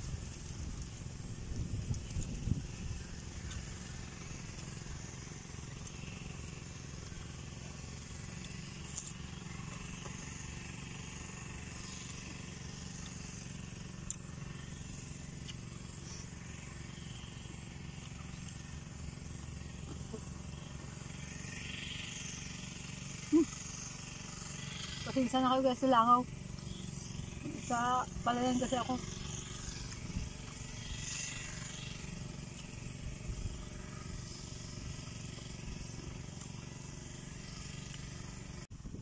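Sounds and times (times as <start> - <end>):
low outdoor rumble: 0.0 - 39.0
crunching chewing: 7.0 - 10.5.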